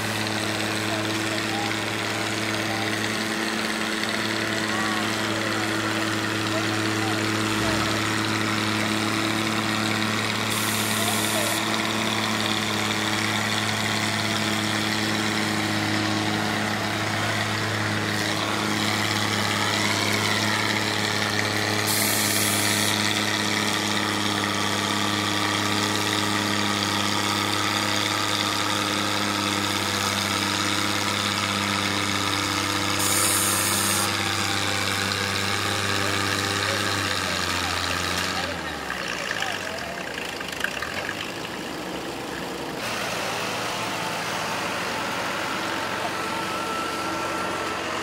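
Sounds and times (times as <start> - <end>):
tractor engine under load: 0.0 - 48.0.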